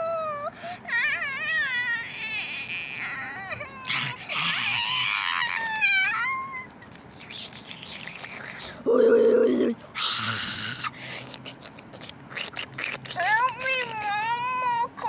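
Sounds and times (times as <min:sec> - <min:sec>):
child imitating crying baby: 0:00.0 - 0:06.7, 0:08.8 - 0:11.0, 0:13.0 - 0:15.0.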